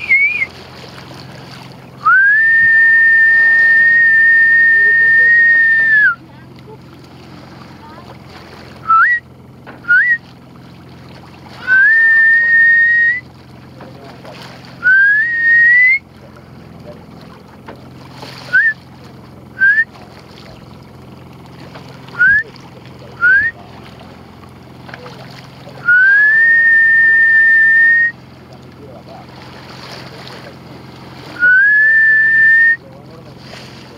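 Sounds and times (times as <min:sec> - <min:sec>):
person whistling: 0:00.0 - 0:00.5, 0:02.0 - 0:06.2, 0:08.9 - 0:09.2, 0:09.9 - 0:10.2, 0:11.6 - 0:13.2, 0:14.8 - 0:16.0, 0:18.5 - 0:18.8, 0:19.6 - 0:19.9, 0:22.2 - 0:22.4, 0:23.2 - 0:23.5, 0:25.8 - 0:28.2, 0:31.4 - 0:32.8.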